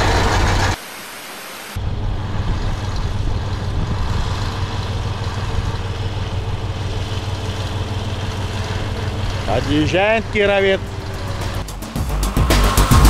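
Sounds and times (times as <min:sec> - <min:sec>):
tractor diesel engine rumbling: 0:00.0 - 0:00.8, 0:01.8 - 0:13.0.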